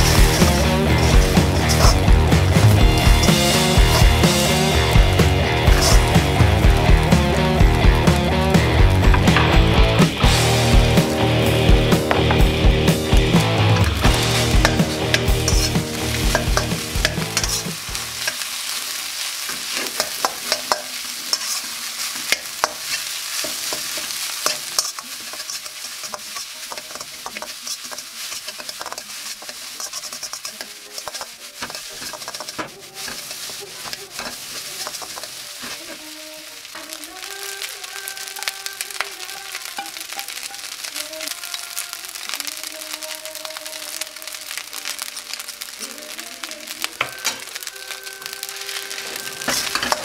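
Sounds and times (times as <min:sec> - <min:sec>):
metal spatula scraping a wok: 0:00.0 - 0:06.6, 0:14.0 - 0:36.4, 0:46.9 - 0:50.0
food sizzling in a wok: 0:00.0 - 0:50.0.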